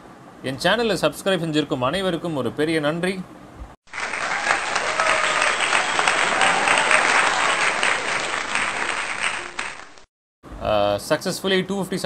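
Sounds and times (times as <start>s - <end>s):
crowd applauding: 3.9s - 10.1s.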